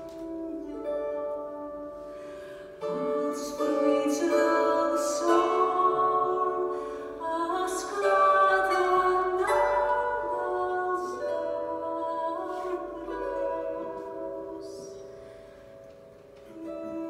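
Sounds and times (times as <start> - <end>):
plucked string instrument: 0.0 - 17.0.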